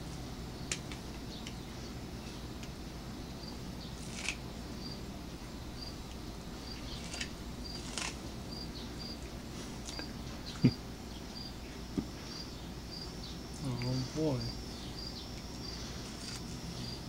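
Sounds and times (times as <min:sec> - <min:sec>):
cricket chirping: 0:00.1 - 0:17.0
cat crunching corn kernels: 0:06.8 - 0:08.3.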